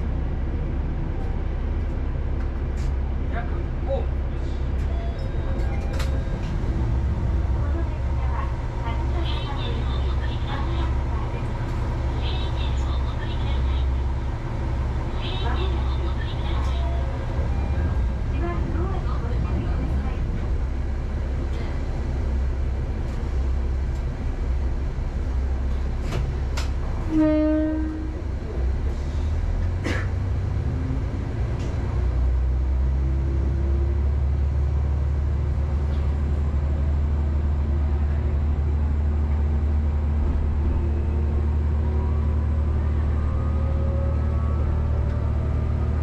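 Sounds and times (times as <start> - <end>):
diesel train engine hum: 0.0 - 46.0
rail clicks: 4.7 - 20.6, 25.7 - 27.2
train horn blast: 27.0 - 28.2.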